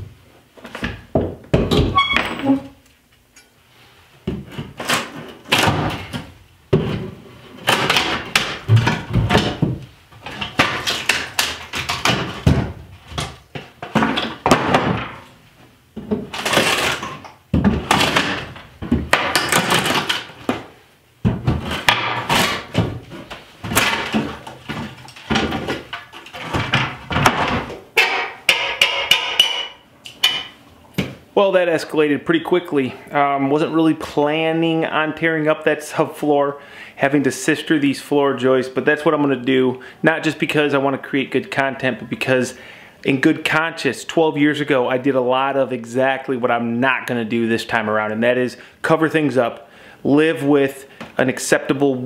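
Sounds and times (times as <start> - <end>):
wood cracking: 7.6 - 15.3, 16.0 - 29.6
wood knocking: 17.5 - 31.2.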